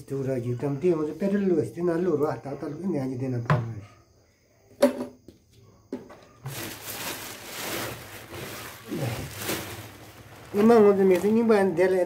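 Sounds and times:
plastic packaging crinkling: 0:06.4 - 0:12.0.

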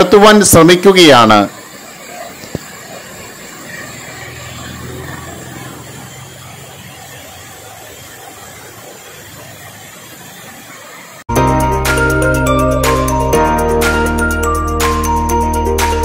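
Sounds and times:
waterfall rushing: 0:00.0 - 0:11.3
vehicle engine low hum: 0:03.4 - 0:07.9.

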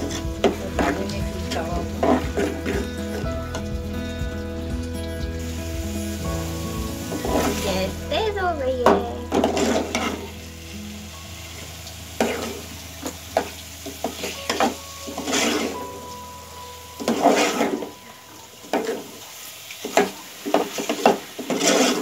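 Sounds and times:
faint sizzle: 0:00.0 - 0:22.0
ladle scraping a metal pot: 0:13.4 - 0:15.9, 0:20.0 - 0:22.0.

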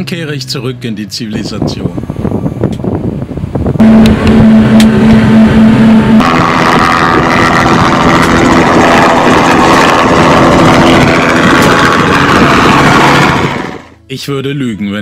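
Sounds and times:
jet ski engine pulsing: 0:01.4 - 0:14.0
helicopter flying low overhead: 0:03.8 - 0:14.0.

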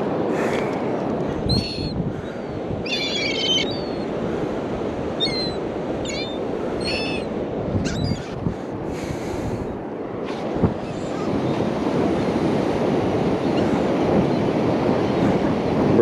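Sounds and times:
surf washing on beach: 0:00.0 - 0:16.0
short high bird calls: 0:02.9 - 0:04.1.

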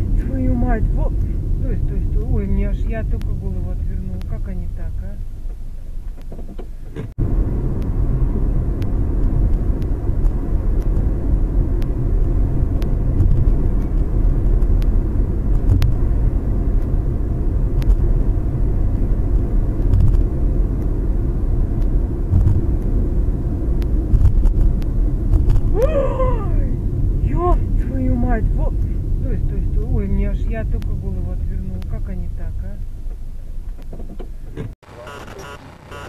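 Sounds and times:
car rumble inside cabin: 0:00.0 - 0:36.0
person exclaiming: 0:25.7 - 0:26.8.

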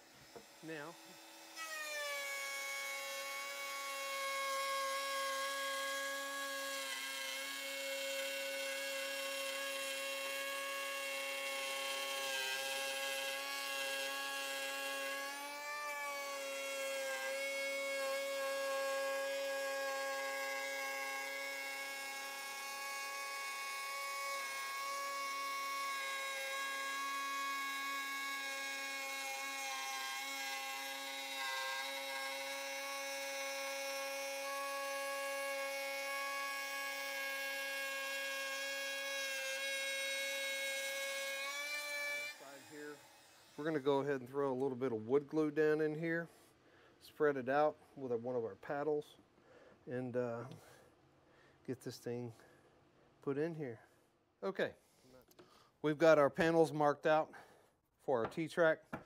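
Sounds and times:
electric power tool whining: 0:00.0 - 0:44.7.

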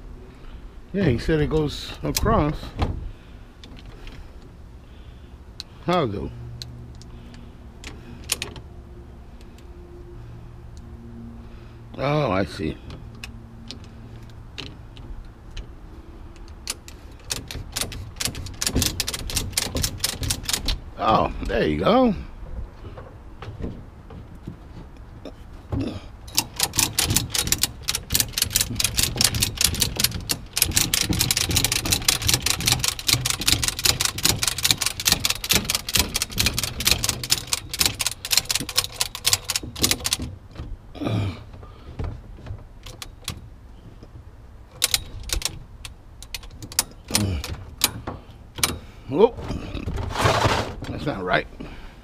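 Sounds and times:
metal ratchet clicking: 0:16.4 - 0:20.8, 0:26.3 - 0:40.3, 0:44.8 - 0:48.0.

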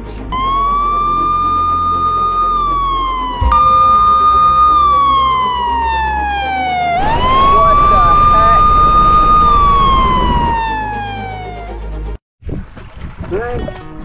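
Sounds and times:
siren wailing: 0:00.2 - 0:12.2.

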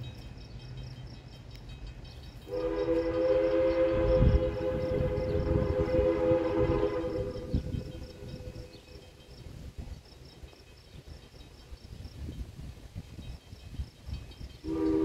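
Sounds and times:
locomotive whistle blast: 0:02.5 - 0:08.8, 0:14.6 - 0:15.0.

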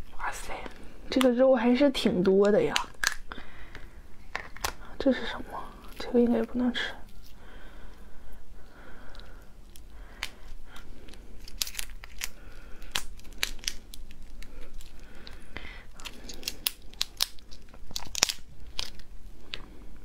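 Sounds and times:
lobster shell cracking and tearing: 0:02.2 - 0:04.8, 0:09.1 - 0:19.7.

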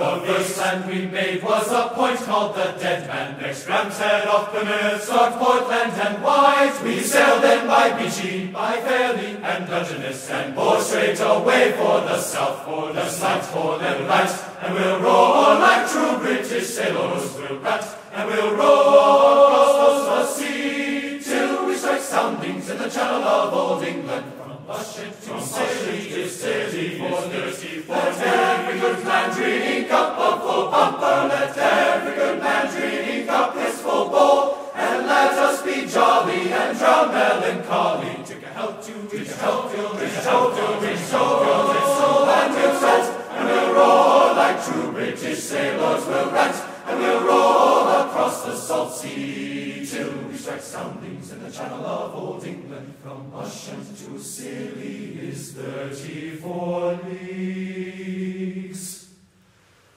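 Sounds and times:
choir singing: 0:00.0 - 0:59.2.

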